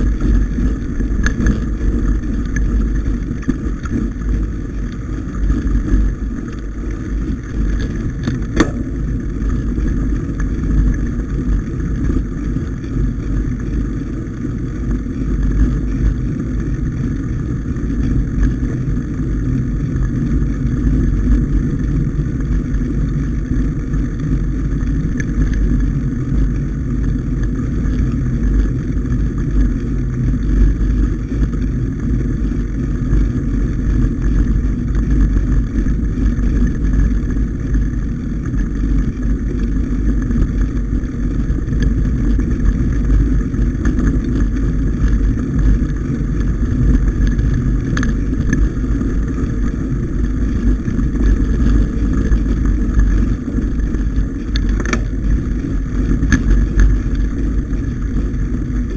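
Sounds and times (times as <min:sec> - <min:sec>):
bike tyre and frame noise: 0:00.0 - 0:58.9.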